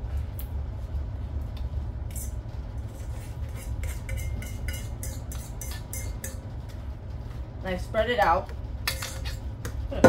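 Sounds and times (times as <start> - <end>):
steady low hum: 0.0 - 10.0
utensil scraping metal bowl: 2.1 - 6.4, 8.9 - 9.4.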